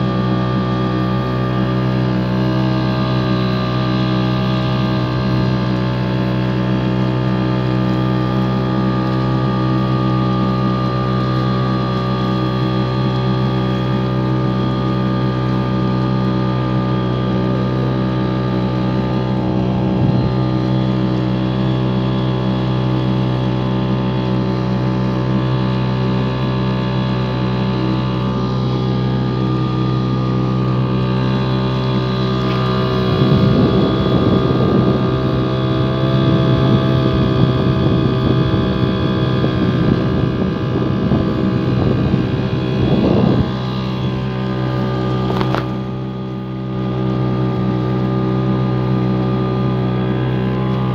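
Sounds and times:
motorboat engine running: 0.0 - 50.9
loud rough rushing noise: 27.1 - 50.9.

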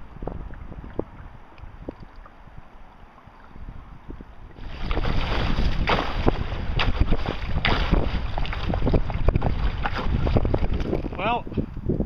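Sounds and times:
wind buffeting microphone: 0.0 - 12.0
water splashing around canoe: 4.4 - 11.1.

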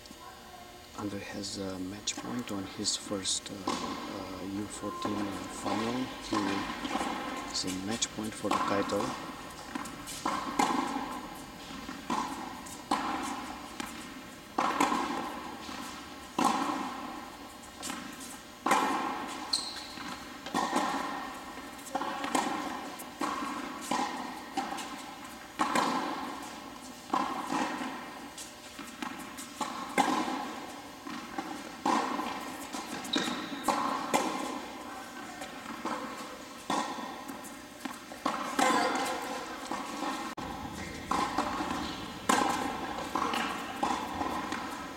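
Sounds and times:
shoes squeaking on court: 1.1 - 44.9
ball bouncing on hard court: 3.2 - 44.9
tennis ball hits: 3.2 - 44.9.

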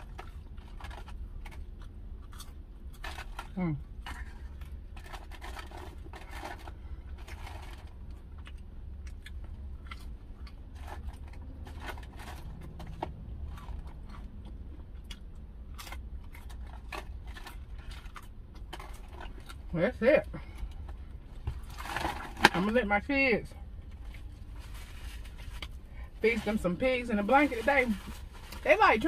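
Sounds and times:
low steady hum: 0.0 - 29.0
chewing and lip-smacking: 7.8 - 19.7
foil crinkling: 24.3 - 29.0.

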